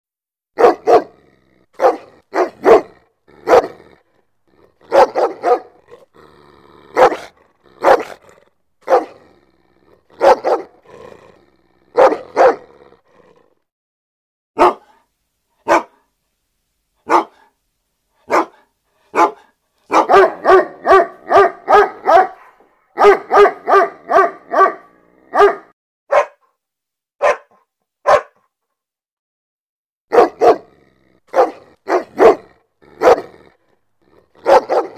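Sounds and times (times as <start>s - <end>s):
dog barking angrily: 0.6s - 13.0s, 14.6s - 15.0s, 15.6s - 16.0s, 17.0s - 17.5s, 18.2s - 26.4s, 27.2s - 28.4s, 30.1s - 34.9s.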